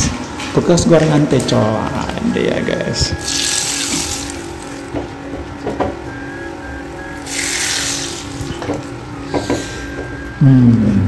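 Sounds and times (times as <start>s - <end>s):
hot oil sizzling: 3.2s - 4.9s, 7.0s - 8.6s.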